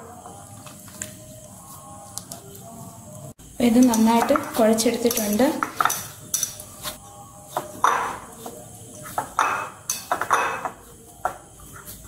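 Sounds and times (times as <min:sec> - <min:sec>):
dough being rubbed and squashed: 0:05.6 - 0:09.4, 0:10.8 - 0:12.0
clinks and taps on ceramic plate: 0:07.8 - 0:08.2, 0:09.2 - 0:11.4.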